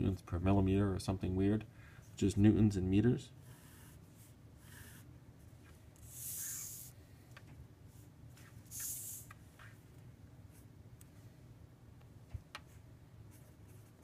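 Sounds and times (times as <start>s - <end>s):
short hissing sounds: 6.0s - 7.0s, 8.7s - 9.4s.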